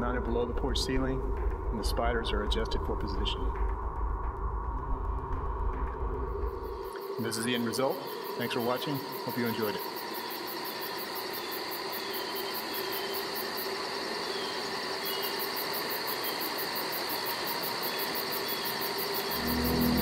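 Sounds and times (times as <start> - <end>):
low music: 0.0 - 7.9, 19.3 - 20.0
background hiss: 0.0 - 20.0
insects chirping: 0.0 - 20.0.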